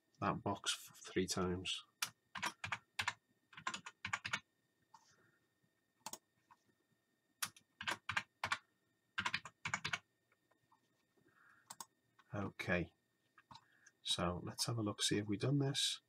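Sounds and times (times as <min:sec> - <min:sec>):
keyboard typing: 0:02.0 - 0:04.5, 0:06.0 - 0:06.6, 0:07.4 - 0:08.6, 0:09.2 - 0:10.1.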